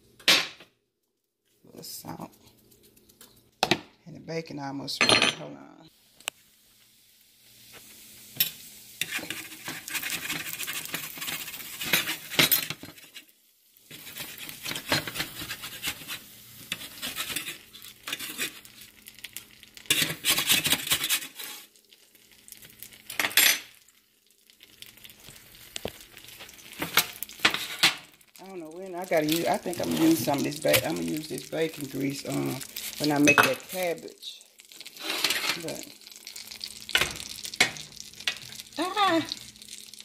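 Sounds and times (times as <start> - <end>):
bacon sizzling: 1.5 - 3.7, 5.9 - 40.0
metal utensil scraping pan: 8.4 - 13.3, 13.9 - 18.7, 19.8 - 21.7, 26.8 - 28.0, 34.8 - 35.8.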